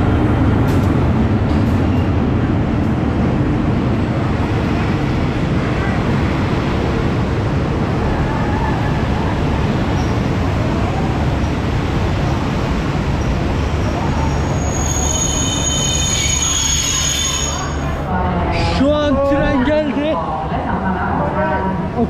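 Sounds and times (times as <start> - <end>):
train rumbling along rails: 0.0 - 22.0
high metallic squeal: 14.4 - 18.0.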